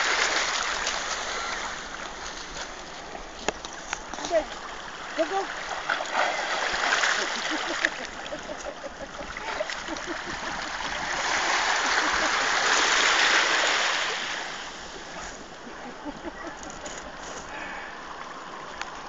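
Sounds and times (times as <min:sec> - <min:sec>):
seawater splashing and lapping: 0:00.0 - 0:19.0.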